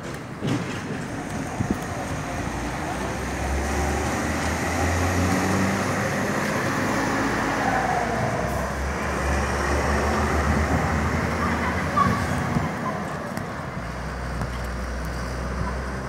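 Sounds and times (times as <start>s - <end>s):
traffic noise: 0.0s - 16.0s
truck engine rumble: 0.0s - 16.0s.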